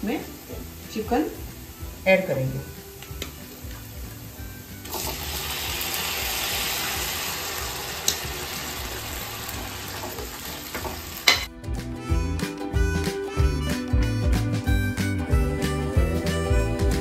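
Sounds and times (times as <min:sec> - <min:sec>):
chicken sizzling in hot oil: 0:00.0 - 0:11.5.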